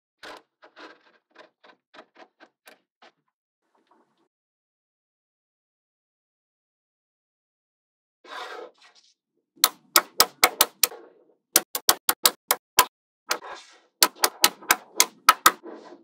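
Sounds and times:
magnetic balls clicking together: 0:11.6 - 0:12.9, 0:14.0 - 0:15.6.

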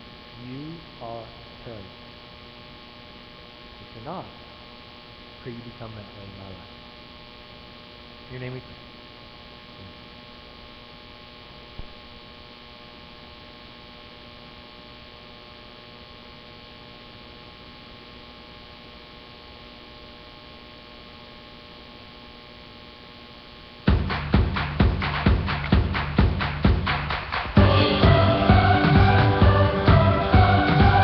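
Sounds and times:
electrical mains hum: 0:00.0 - 0:31.0
loud music with a beat: 0:23.9 - 0:31.0.

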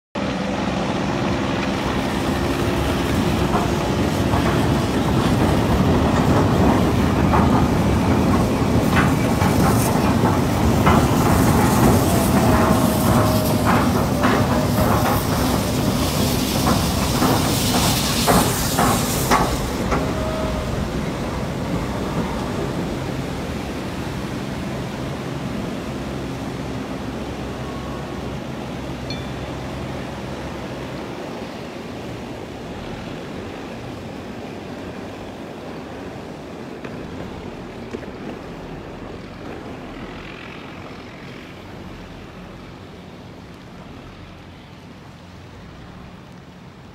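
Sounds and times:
boat sliding down slipway hissing: 0:00.2 - 0:46.9.

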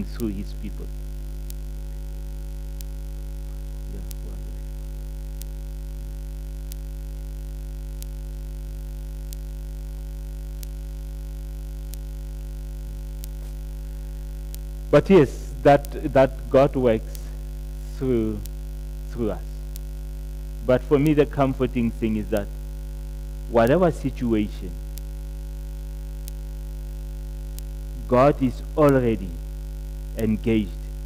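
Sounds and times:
electrical mains hum: 0:00.0 - 0:31.0
faint ticks: 0:00.1 - 0:15.0, 0:17.0 - 0:21.7, 0:24.1 - 0:27.9.

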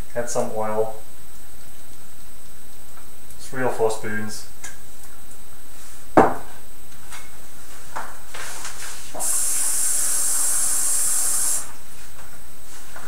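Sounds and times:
kitchen tap running: 0:09.2 - 0:11.8.

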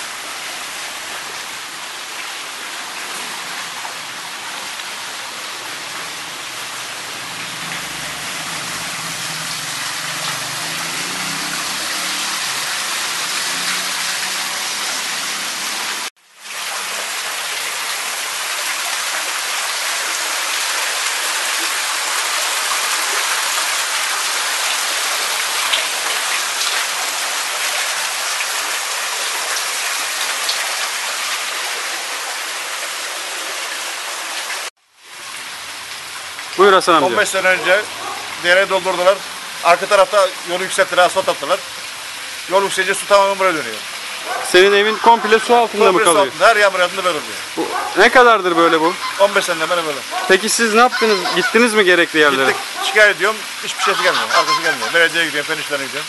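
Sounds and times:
rushing and splashing floodwater: 0:00.0 - 0:56.0.

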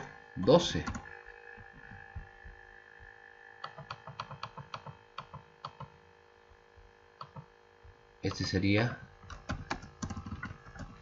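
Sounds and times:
faint electrical hum: 0:00.0 - 0:11.0
computer mouse clicking: 0:03.6 - 0:06.0, 0:07.2 - 0:07.5, 0:09.2 - 0:11.0.

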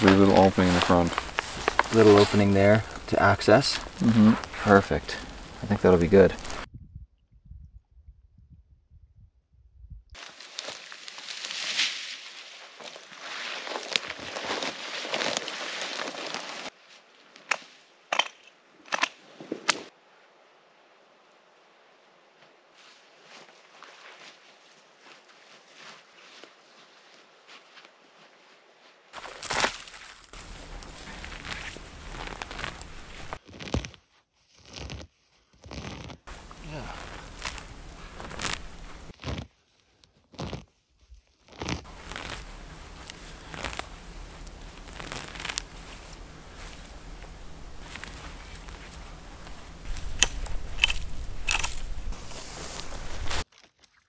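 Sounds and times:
branches dragged through brush: 0:00.0 - 0:06.7, 0:10.2 - 0:17.2, 0:22.8 - 0:53.5
moss and lichen ripping: 0:00.0 - 0:06.7, 0:10.2 - 0:16.7, 0:29.2 - 0:54.0
sharp woody cracks: 0:49.9 - 0:52.0.

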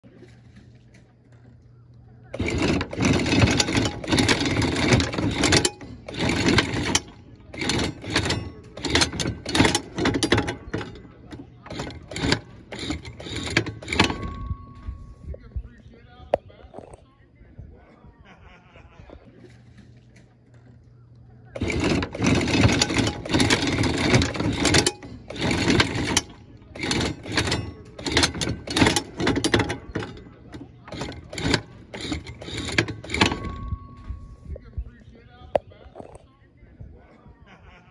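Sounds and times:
anchor chain clanks: 0:00.0 - 0:15.8, 0:21.5 - 0:35.0
anchor windlass motor and chain: 0:00.0 - 0:16.1, 0:19.2 - 0:36.2.

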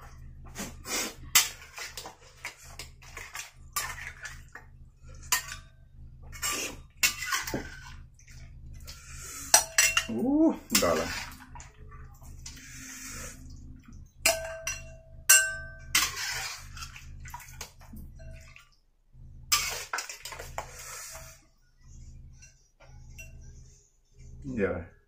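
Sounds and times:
liquid sloshing and splashing: 0:00.7 - 0:14.8, 0:15.9 - 0:21.0
spoon clinking against a wok: 0:14.2 - 0:16.2.

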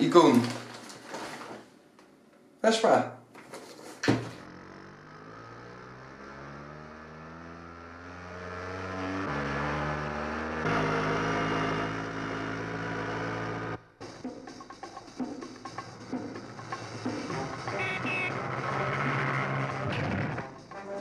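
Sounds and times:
vintage film soundtrack music: 0:13.9 - 0:21.0.

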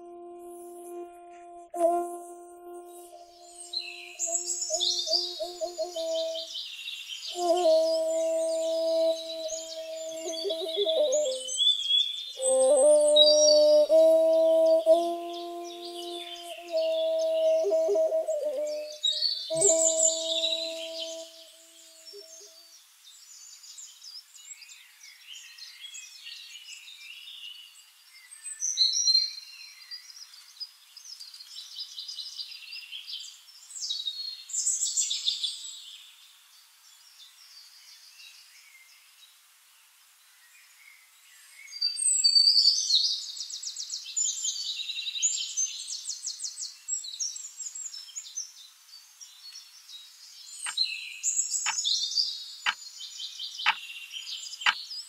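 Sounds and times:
birds chirping and trilling: 0:03.5 - 0:22.5.

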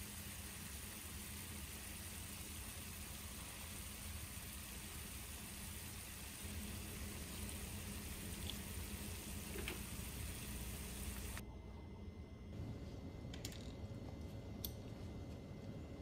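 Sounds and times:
steady hiss: 0:00.0 - 0:11.4.

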